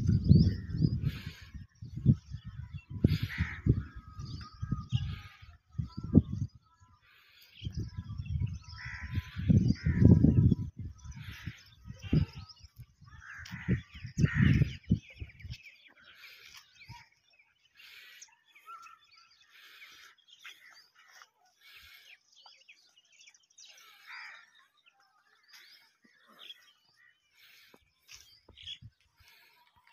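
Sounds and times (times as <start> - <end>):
wind buffeting microphone: 0.0 - 7.0, 7.6 - 15.9
small birds chirping: 0.0 - 29.9
crows cawing: 3.1 - 4.1, 8.8 - 10.2, 13.1 - 14.7, 23.8 - 24.6.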